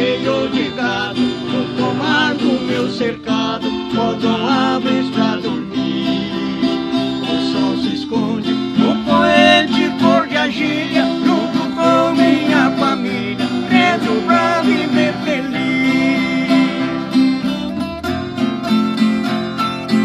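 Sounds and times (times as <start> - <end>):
two men singing country song: 0.0 - 17.5
strummed acoustic guitars: 0.0 - 20.0.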